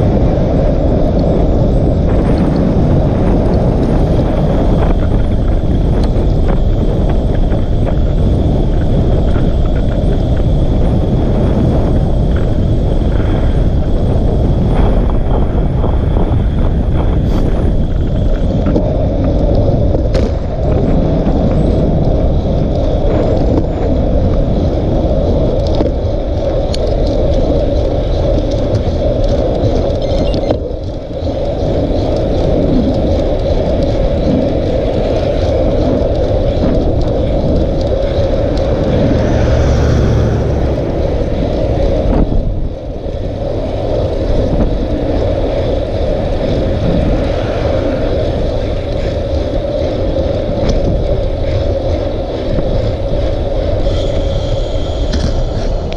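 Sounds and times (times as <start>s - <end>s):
tyre noise on asphalt: 0.0s - 55.9s
wind rushing on microphone: 0.0s - 55.9s
passing vehicle hiss: 38.3s - 42.8s.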